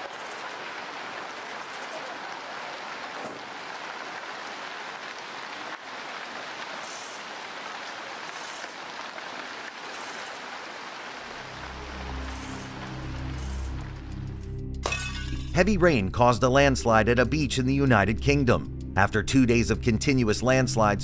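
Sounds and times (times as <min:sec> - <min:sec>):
muddy debris flow rushing: 0:00.0 - 0:14.0
low background music: 0:11.4 - 0:21.0.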